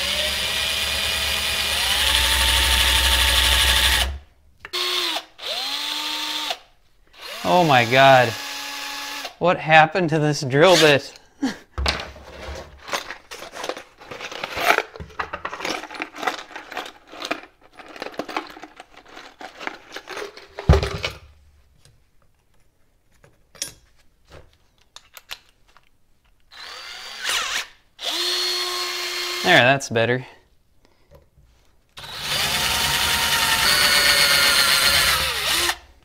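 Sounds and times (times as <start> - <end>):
drill whining unloaded: 0.0 - 6.6, 7.2 - 9.3, 26.5 - 29.4, 32.0 - 35.9
drill chuck and bits clicking: 32.0 - 35.8.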